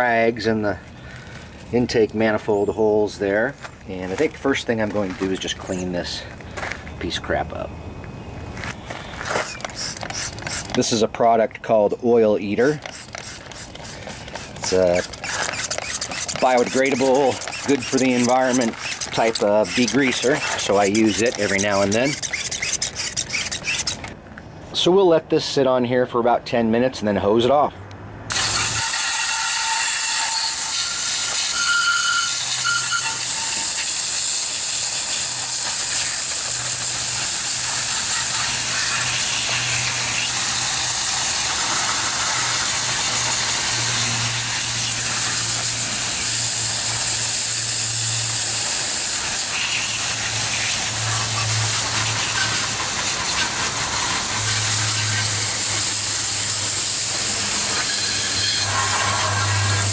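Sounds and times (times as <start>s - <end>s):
water spray hissing: 9.4s - 10.9s, 12.6s - 24.2s, 28.3s - 59.9s.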